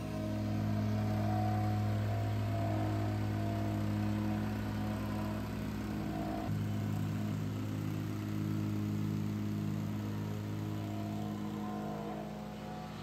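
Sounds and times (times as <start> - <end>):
plate compactor running: 0.0 - 13.0.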